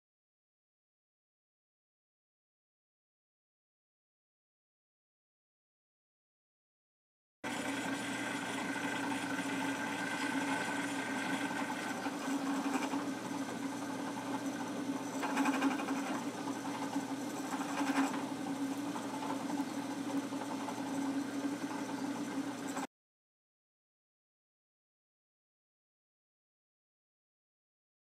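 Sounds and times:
drill press motor running: 7.4s - 22.9s
drill bit cutting wood: 7.5s - 22.9s.

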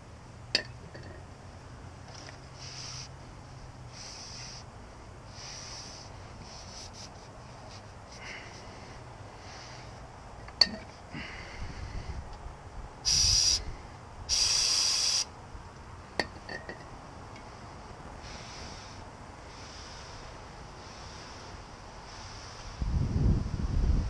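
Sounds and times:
aerosol spray hiss: 2.5s - 3.2s, 3.9s - 4.7s, 5.3s - 7.2s, 13.0s - 13.7s, 14.3s - 15.3s, 18.2s - 22.8s.

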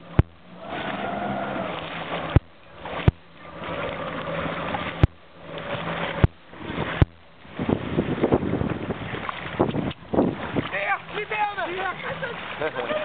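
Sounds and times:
jet ski engine idling: 0.0s - 13.0s.

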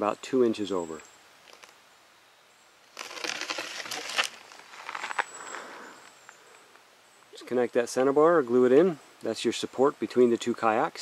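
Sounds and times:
footsteps crunching on gravel: 3.0s - 5.6s.

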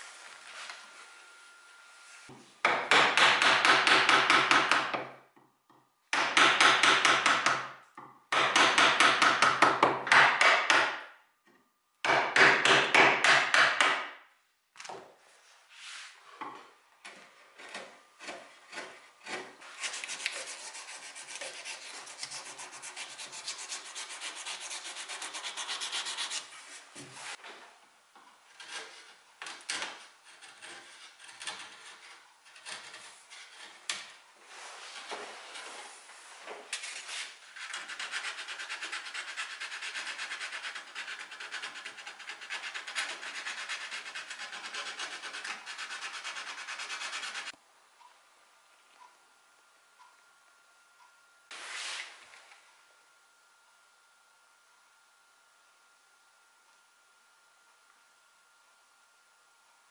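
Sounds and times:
chisel paring wood: 2.6s - 5.2s, 6.1s - 11.0s, 12.0s - 14.2s, 28.6s - 34.1s
wood rasp scraping hardwood: 17.2s - 27.4s, 28.5s - 34.0s, 37.1s - 47.6s.

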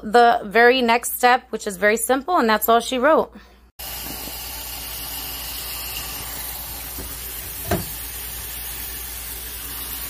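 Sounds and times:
tap water running onto vegetables: 3.8s - 10.0s
knock: 7.0s - 8.0s.

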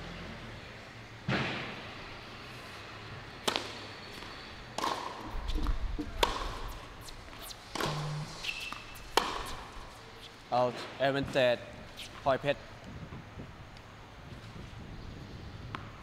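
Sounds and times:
tennis ball hit by racket: 3.4s - 3.8s, 4.8s - 6.8s, 7.4s - 10.0s.

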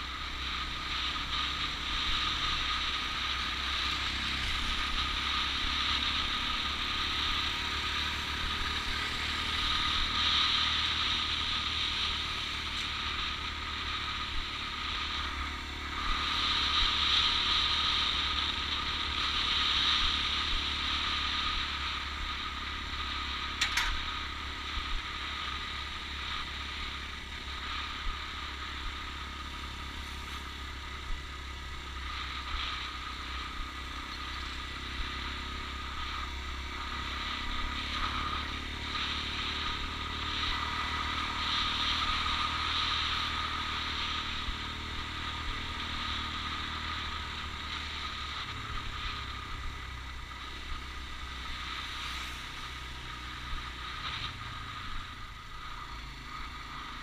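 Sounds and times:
motorcycle engine running: 0.0s - 57.0s
wind and road noise: 0.0s - 57.0s
sharp click: 23.6s - 24.0s.

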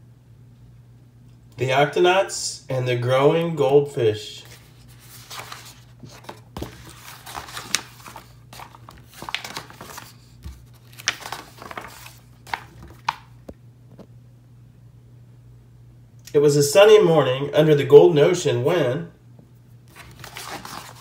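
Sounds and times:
book pages turning: 4.3s - 14.0s, 19.8s - 21.0s.

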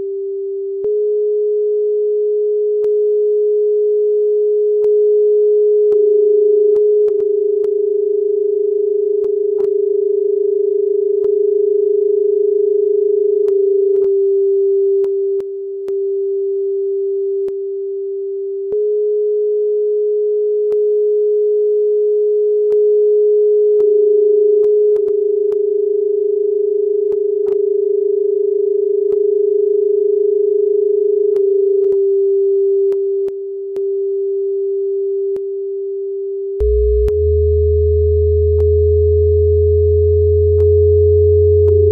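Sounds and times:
electronic sine-wave drone: 36.6s - 41.9s.

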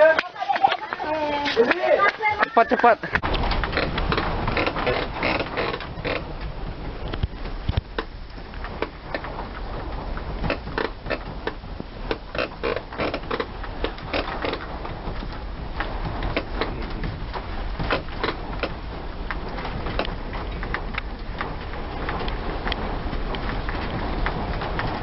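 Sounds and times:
wooden house creaking and rattling: 0.0s - 25.0s
rapid irregular knocks and clicks: 1.6s - 25.0s.

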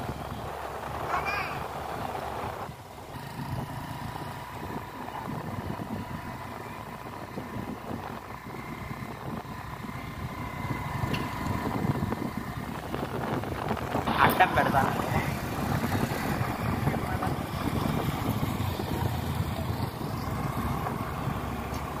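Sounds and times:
vehicle engine rumble: 0.0s - 22.0s
wind buffeting microphone: 0.0s - 22.0s.

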